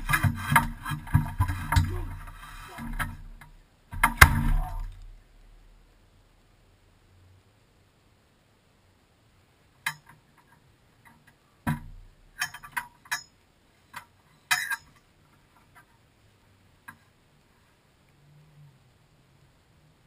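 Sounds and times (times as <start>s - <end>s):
dull thump: 0.0s - 5.1s, 11.6s - 12.1s.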